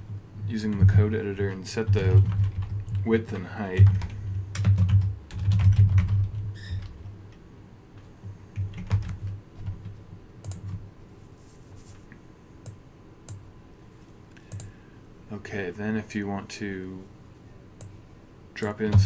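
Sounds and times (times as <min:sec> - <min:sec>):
typing on computer keyboard: 0:01.9 - 0:06.9, 0:08.6 - 0:10.8, 0:14.5 - 0:14.7.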